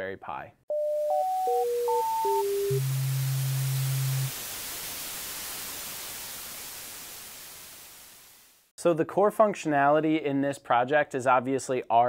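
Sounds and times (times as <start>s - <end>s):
low steady tone: 0.7s - 4.3s
static hiss: 1.5s - 8.7s.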